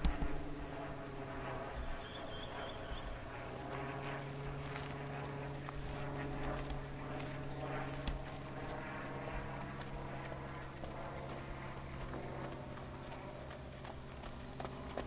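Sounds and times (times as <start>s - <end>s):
horse hooves on sand: 0.0s - 15.0s
low machine hum: 0.0s - 15.0s.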